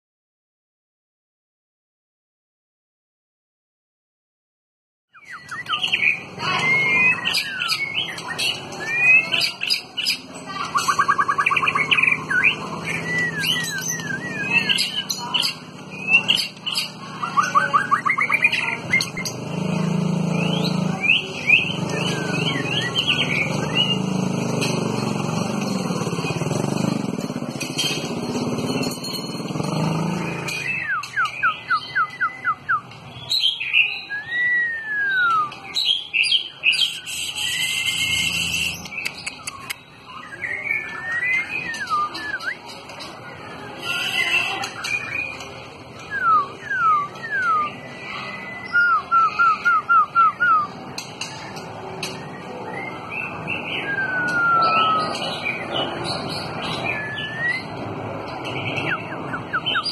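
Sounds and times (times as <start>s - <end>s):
bird singing whistled phrases: 5.1s - 19.3s, 30.4s - 42.7s, 46.0s - 50.8s, 52.2s - 55.7s, 56.6s - 57.7s, 58.6s - 59.9s.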